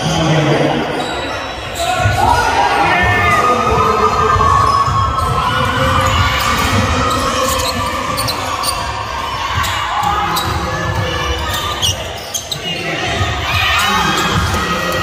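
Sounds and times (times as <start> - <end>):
crowd chatter and shouts: 0.0 - 15.0
sneaker squeaks: 0.1 - 2.4, 4.1 - 15.0
basketball bouncing: 3.2 - 8.8, 9.5 - 15.0.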